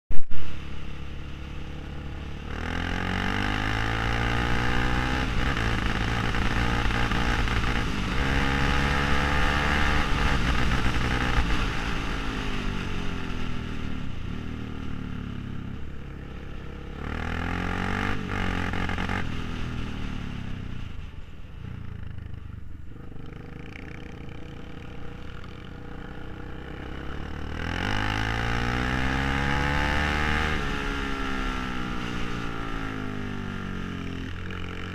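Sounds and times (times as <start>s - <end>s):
quad bike engine revving: 1.8s - 12.5s, 16.6s - 19.6s, 23.0s - 34.9s.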